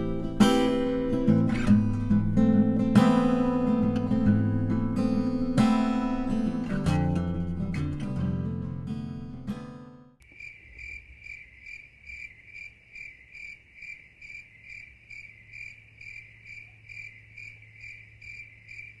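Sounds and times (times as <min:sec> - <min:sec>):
high insect-like chirp: 0:10.2 - 0:19.0.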